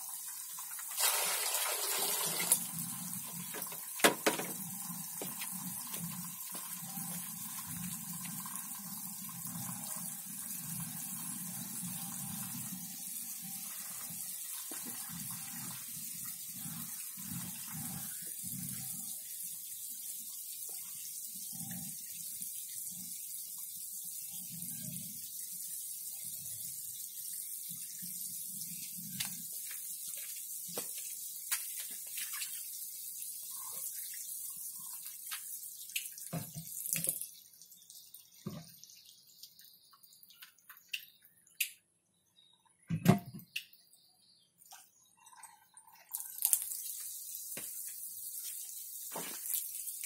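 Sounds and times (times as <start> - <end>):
water pouring onto wet ground: 0.8 - 2.8, 46.0 - 50.0.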